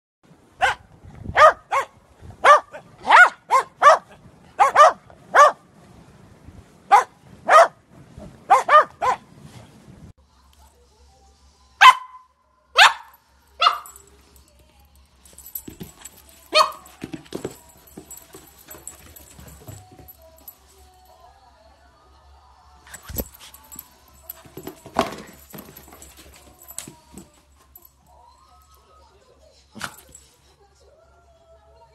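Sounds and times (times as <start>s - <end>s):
dog barking: 0.6s - 5.6s, 6.9s - 7.8s, 8.5s - 9.3s, 11.8s - 14.0s, 16.5s - 17.0s.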